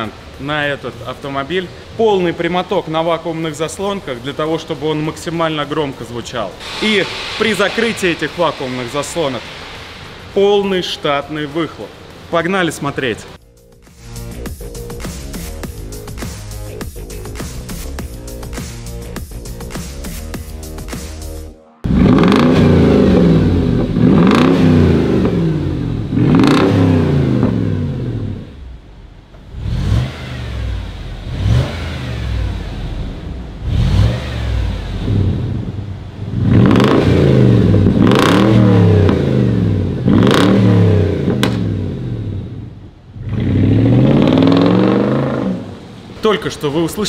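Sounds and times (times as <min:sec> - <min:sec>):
car engine revving: 0:06.5 - 0:12.3, 0:21.0 - 0:47.0.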